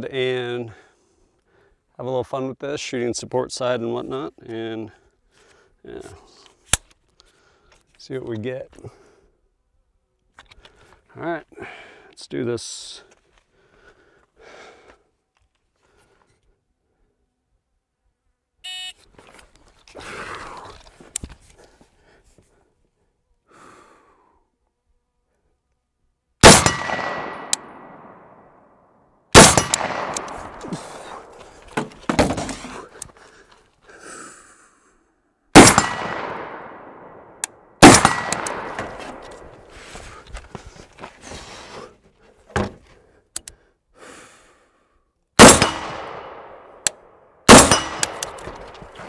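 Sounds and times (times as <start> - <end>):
rifle shots with echo: 26.4 - 28.6, 29.3 - 31.4, 35.6 - 39.6, 45.4 - 49.0.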